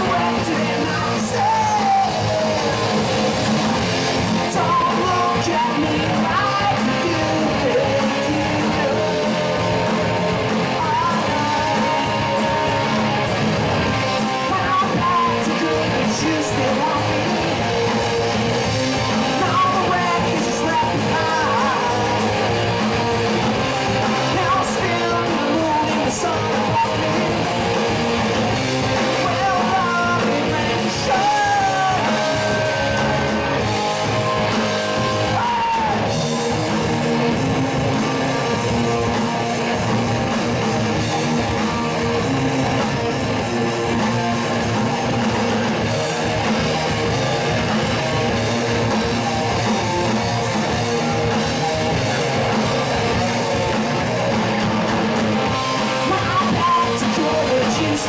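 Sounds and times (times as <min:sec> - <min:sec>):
man singing: 0:00.0 - 0:13.3, 0:14.0 - 0:17.9, 0:18.7 - 0:22.6, 0:23.5 - 0:27.7, 0:28.5 - 0:38.6, 0:55.4 - 0:58.0
drum kit: 0:00.0 - 0:58.0
electric bass: 0:00.0 - 0:58.0
electric guitars: 0:00.0 - 0:58.0.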